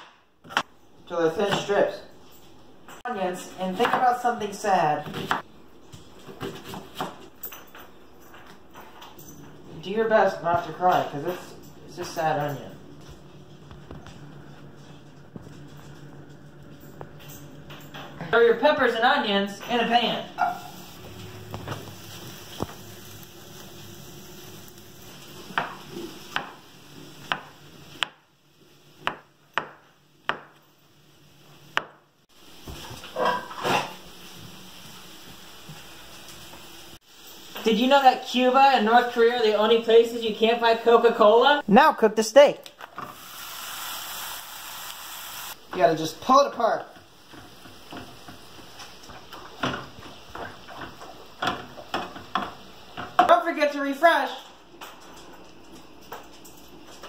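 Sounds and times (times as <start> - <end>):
meat sizzling in a frying pan: 20.6 - 28.0, 32.3 - 38.6, 43.0 - 53.2
knife chopping on cutting board: 29.0 - 30.6.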